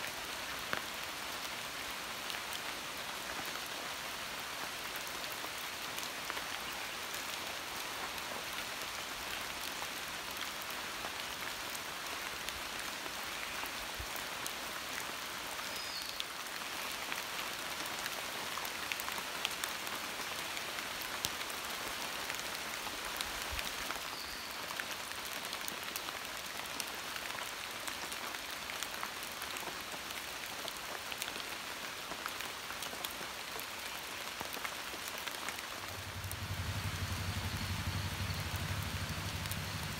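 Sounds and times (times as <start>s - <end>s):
rain on leaves: 0.0s - 39.9s
raindrop ticks: 34.4s - 39.9s.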